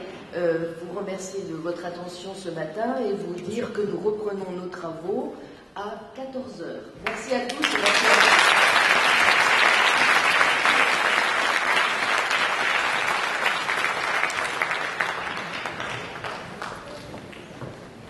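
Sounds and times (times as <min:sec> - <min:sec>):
audience applauding: 0:07.5 - 0:17.9.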